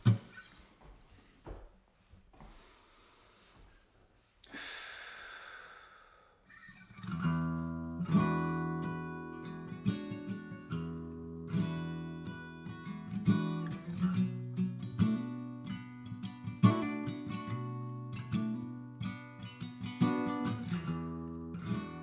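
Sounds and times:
acoustic guitar playing: 6.8 - 22.0.

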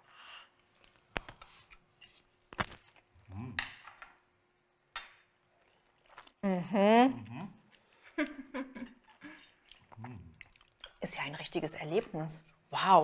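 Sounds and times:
person murmuring: 3.3 - 3.6, 6.7 - 7.6.

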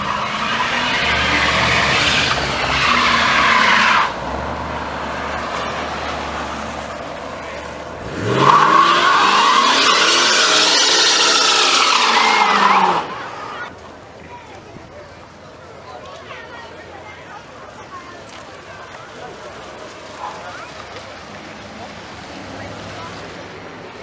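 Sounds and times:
tyres spinning and squealing: 0.0 - 4.2, 6.9 - 13.7
car engine revving: 0.0 - 13.7
car engine and tyre noise: 0.0 - 24.0.

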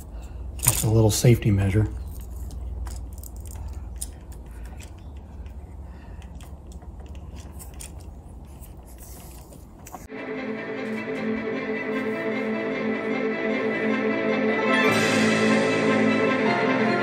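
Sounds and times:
background music: 10.1 - 17.0.

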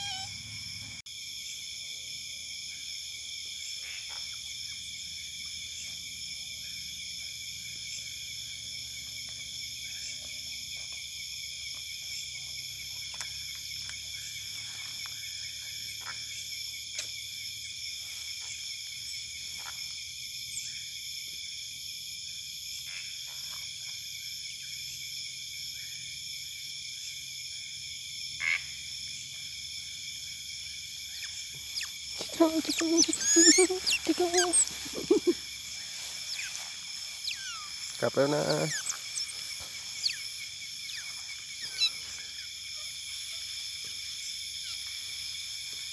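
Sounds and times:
frogs calling: 0.0 - 0.8, 3.6 - 17.1, 28.3 - 45.8
insects trilling: 0.0 - 45.9.

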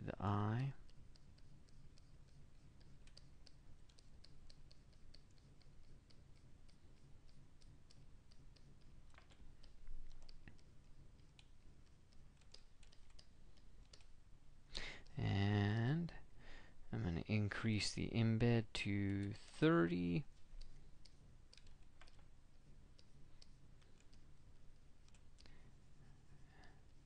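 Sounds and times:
computer keys clicking: 0.5 - 14.2, 19.0 - 25.7.

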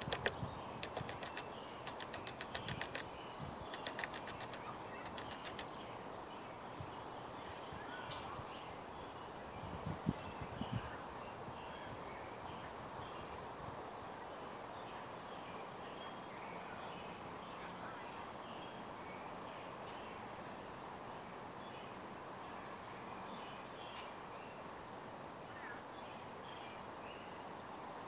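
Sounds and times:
songbirds chattering: 0.0 - 9.3
background hum: 0.0 - 10.9.

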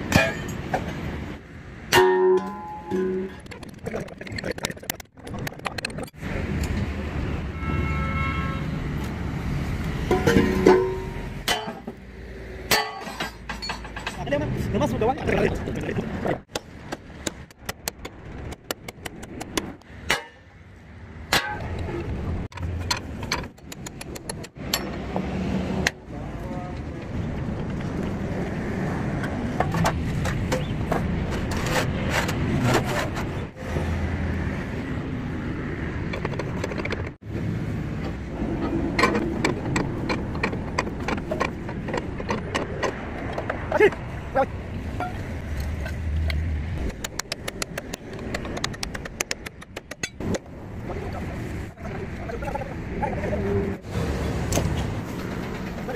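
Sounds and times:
hammer striking steel: 1.9 - 3.4, 10.1 - 12.0, 12.7 - 14.2, 20.0 - 20.5, 21.3 - 21.8.

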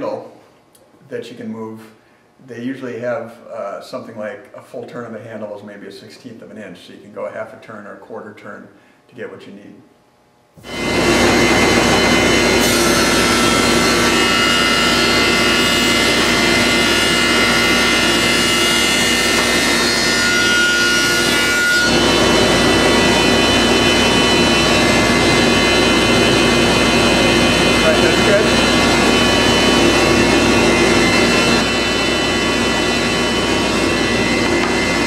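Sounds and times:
thickness planer whining: 10.6 - 35.0.

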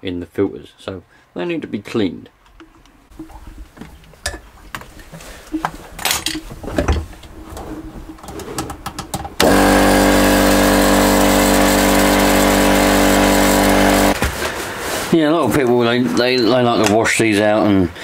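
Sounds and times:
air compressor humming: 9.4 - 14.2.

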